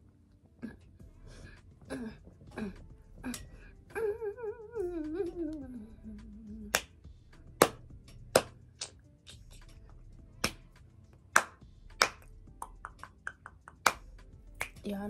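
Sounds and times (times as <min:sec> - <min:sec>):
fingers snapping: 0:06.2 - 0:09.8, 0:10.4 - 0:14.9.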